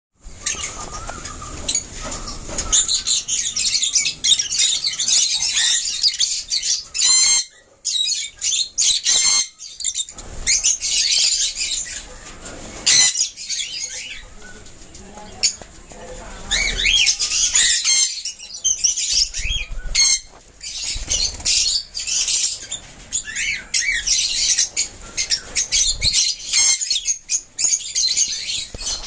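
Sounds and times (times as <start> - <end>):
lovebirds chirping: 0.2 - 29.0
shrill bird calls: 0.4 - 11.9.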